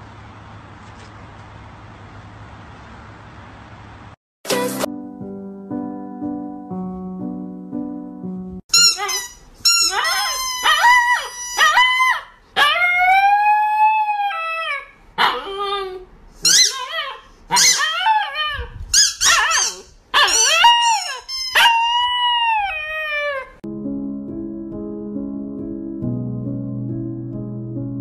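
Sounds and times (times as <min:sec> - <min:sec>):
soft background music: 0:04.5 - 0:08.6, 0:23.7 - 0:28.0
puppy howling and yipping: 0:08.8 - 0:23.6.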